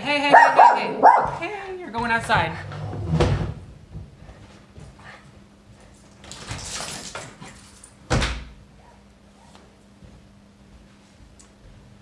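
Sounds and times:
door opening: 0:02.1 - 0:03.6.

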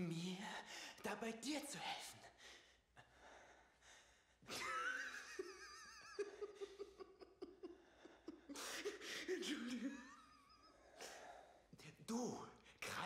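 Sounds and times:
man laughing: 0:04.5 - 0:11.2.

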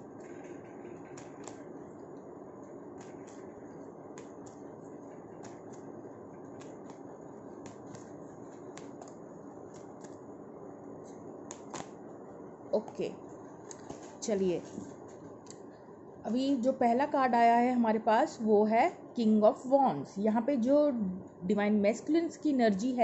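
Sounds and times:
cards shuffling rustle: 0:03.0 - 0:05.9, 0:06.5 - 0:10.2
cards clicking together: 0:11.5 - 0:12.0.

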